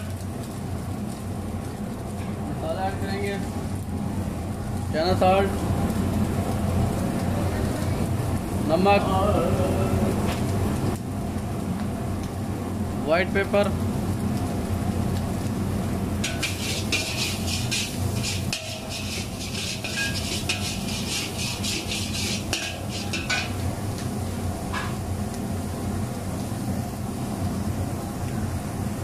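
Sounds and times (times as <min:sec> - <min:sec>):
steady low hum: 0:00.0 - 0:29.0
metal spatula scraping iron pan: 0:16.2 - 0:23.6.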